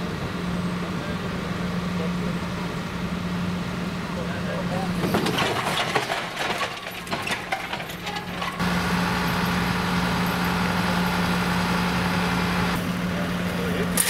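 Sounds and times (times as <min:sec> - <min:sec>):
diesel engine idling: 0:00.0 - 0:14.0
machinery clanks and knocks: 0:04.8 - 0:11.3.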